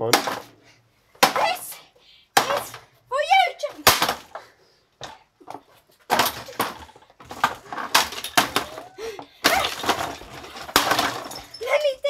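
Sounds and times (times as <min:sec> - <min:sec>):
hammer smashing plastic: 0:00.0 - 0:00.6, 0:02.4 - 0:02.8, 0:03.8 - 0:04.4, 0:06.1 - 0:11.6
plastic cracking and clattering: 0:05.5 - 0:11.6.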